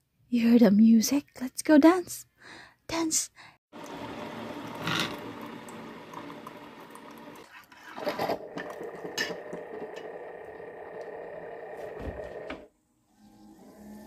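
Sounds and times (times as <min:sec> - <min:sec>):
coffee maker pump humming: 0:03.7 - 0:12.7.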